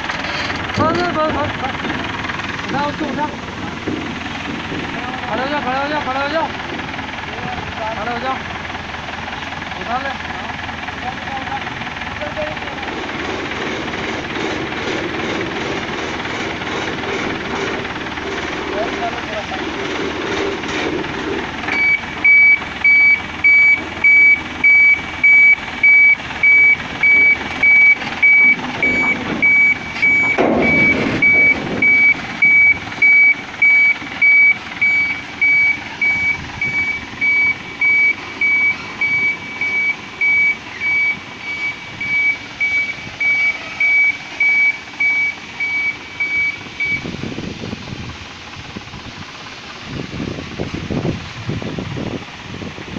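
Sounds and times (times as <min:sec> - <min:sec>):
forklift warning beeper: 0:21.7 - 0:47.2.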